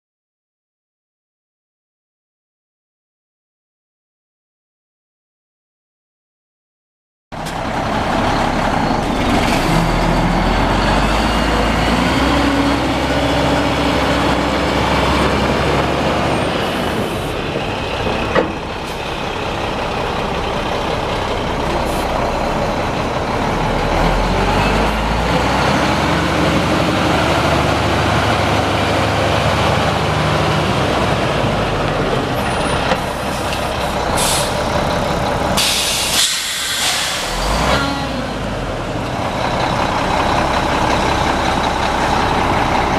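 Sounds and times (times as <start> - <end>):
diesel truck engine running: 7.4 - 42.9
bursts of air hiss: 35.6 - 37.4.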